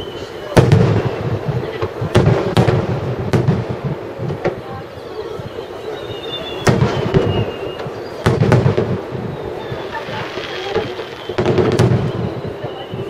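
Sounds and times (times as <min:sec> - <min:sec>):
firework shells bursting: 0:05.4 - 0:13.0.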